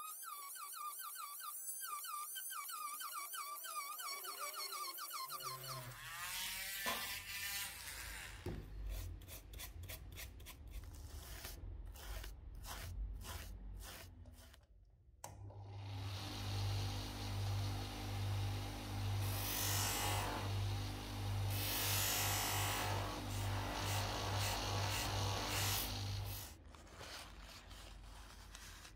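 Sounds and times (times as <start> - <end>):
rotary engraving tool whining: 0.0 - 8.5, 15.9 - 26.5
toothbrush scrubbing: 8.8 - 14.6
polishing machine humming: 15.7 - 26.5.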